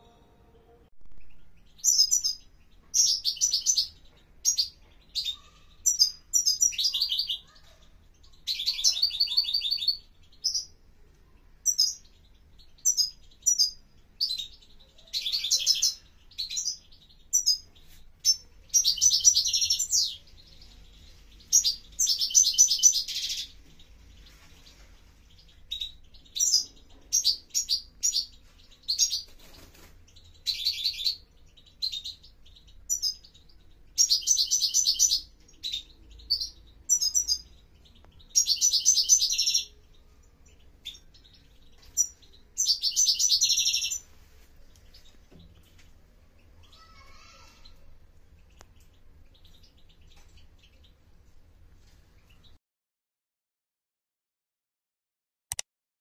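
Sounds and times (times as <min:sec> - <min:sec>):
goldfinch twittering and trilling: 0:01.2 - 0:10.7, 0:11.6 - 0:17.6, 0:18.2 - 0:44.0.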